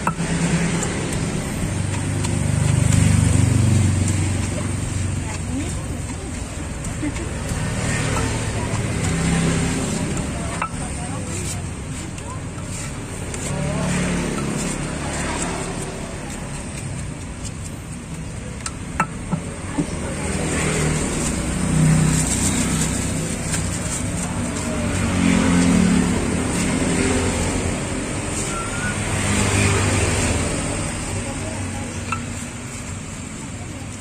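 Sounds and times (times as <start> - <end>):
pestle knocking stone mortar: 0.0 - 13.6, 16.6 - 20.1
vehicles passing: 0.0 - 34.0.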